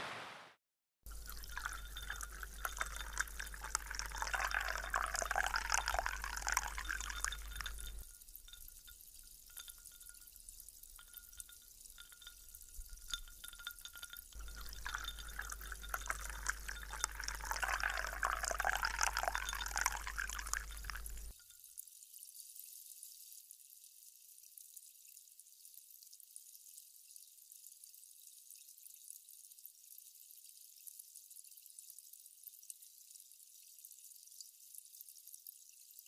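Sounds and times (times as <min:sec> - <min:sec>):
faint crackling ice: 0:01.1 - 0:08.1, 0:12.0 - 0:21.3
liquid pouring into glass of ice: 0:01.1 - 0:21.5.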